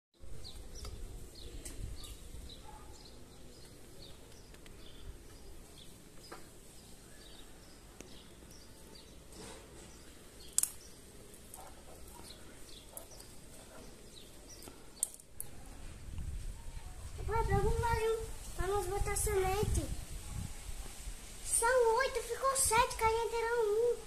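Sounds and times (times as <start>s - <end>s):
sharp click: 10.5s - 10.9s.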